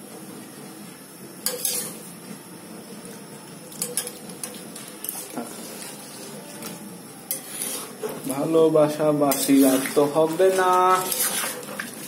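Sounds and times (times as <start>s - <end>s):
steady background hiss: 0.0s - 12.0s
spoon scraping metal pot: 1.5s - 2.0s, 7.3s - 8.2s, 9.3s - 12.0s.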